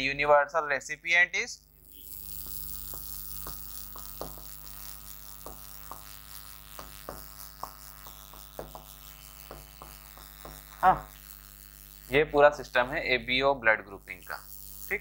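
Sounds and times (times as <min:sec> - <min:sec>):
electrical mains hum: 0:00.0 - 0:15.0
pen tapping on a board: 0:02.8 - 0:04.6, 0:05.3 - 0:10.7.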